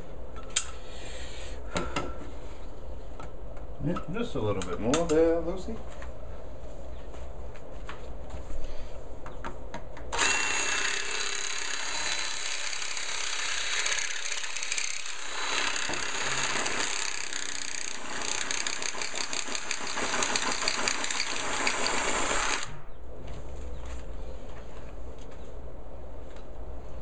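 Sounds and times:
cordless drill boring: 10.2 - 22.8.

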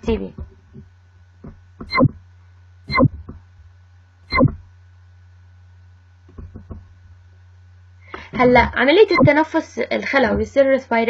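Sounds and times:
steady low hum: 0.0 - 11.0
sharp knocks: 6.3 - 6.9.

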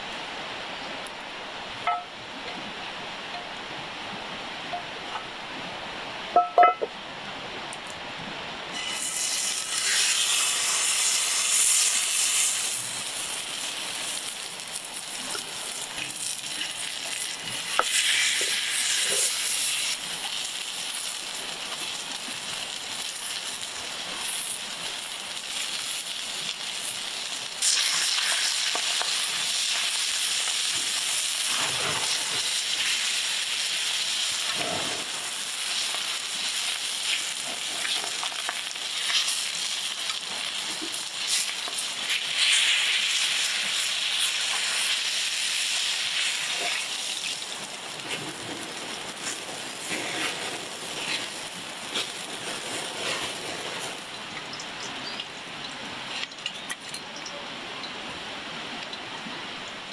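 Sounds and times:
steak sizzling in a pan: 8.7 - 54.1.

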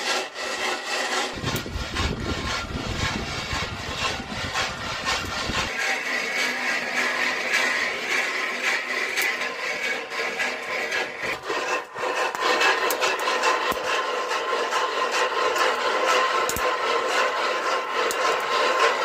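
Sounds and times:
maize kernels rattling in metal pan: 12.6 - 19.0.

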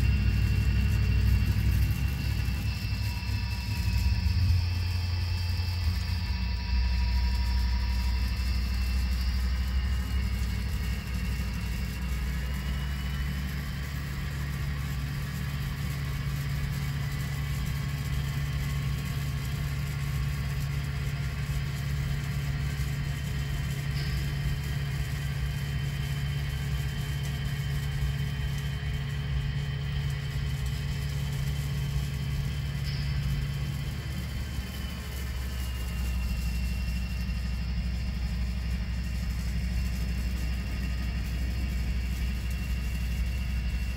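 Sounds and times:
diesel locomotive rumble: 0.0 - 14.8, 28.7 - 43.9.

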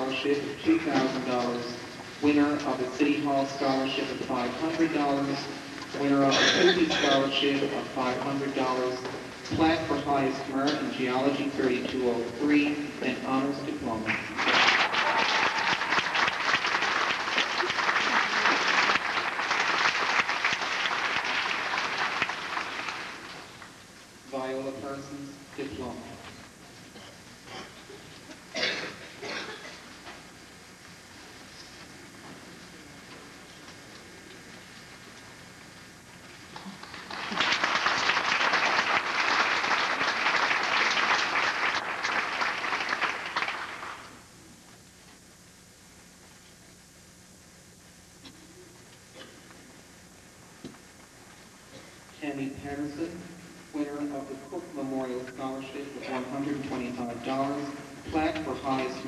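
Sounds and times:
audience applause: 14.1 - 23.6, 36.5 - 44.2.

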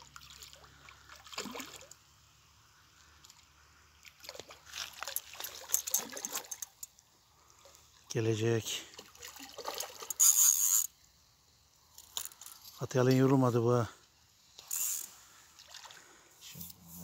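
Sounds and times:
fish splashing in water: 0.1 - 2.0, 8.9 - 10.1.

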